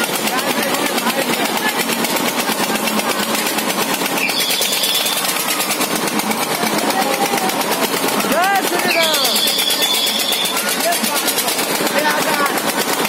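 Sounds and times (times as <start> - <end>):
fairground ride machinery running: 0.0 - 13.0
fast rattling clatter: 0.0 - 13.0.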